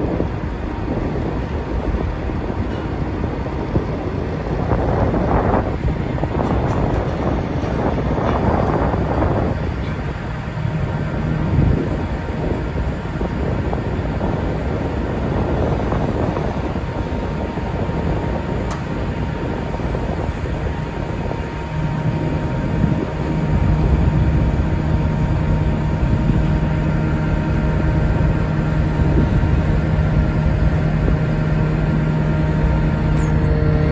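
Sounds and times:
boat engine and crane hum: 0.0 - 33.9.

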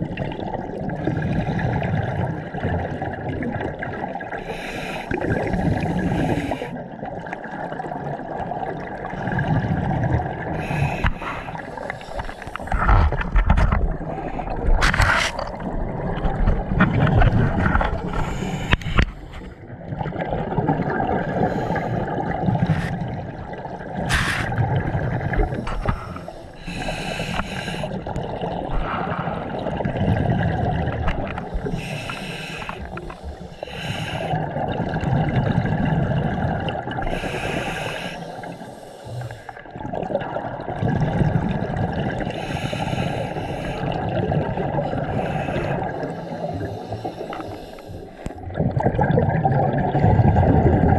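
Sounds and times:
exhaled air bubbling: 0.0 - 50.9
scuba regulator breathing: 4.4 - 6.8, 10.4 - 13.4, 18.0 - 19.6, 21.2 - 23.0, 24.1 - 24.6, 25.2 - 29.7, 31.3 - 34.4, 37.0 - 39.6, 42.3 - 44.2, 44.8 - 48.5.

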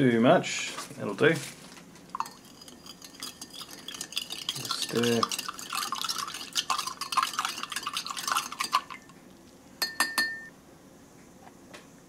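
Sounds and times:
spoon tapping a glass: 2.2 - 9.1, 9.8 - 10.5
spoon stirring in a glass: 2.2 - 9.2, 9.8 - 10.5.

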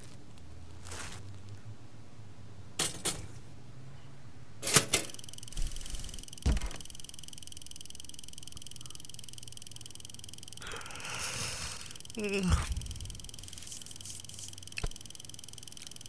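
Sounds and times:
high-pitched electric hum: 4.6 - 16.0.

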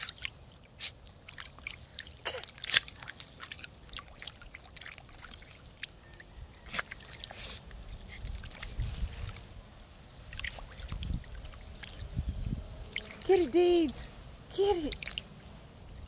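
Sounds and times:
puppy lapping water: 0.0 - 9.4, 10.1 - 12.3.

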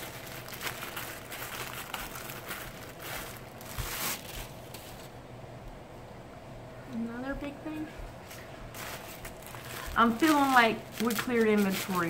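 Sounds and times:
packaging rustling and crinkling: 0.0 - 5.2, 8.3 - 12.0.

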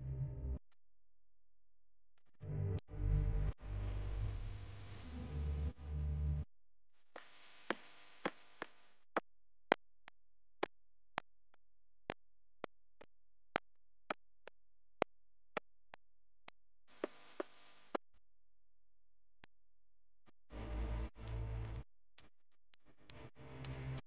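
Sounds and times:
sparse background music: 2.4 - 6.5.

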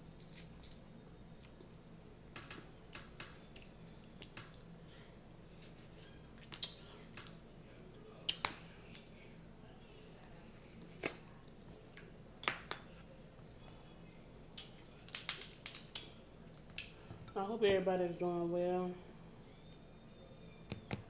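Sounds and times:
crab shells cracking: 14.6 - 16.1.

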